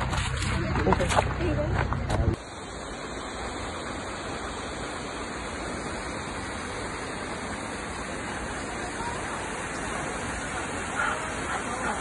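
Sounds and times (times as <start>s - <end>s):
waterfall rushing: 2.4s - 12.0s.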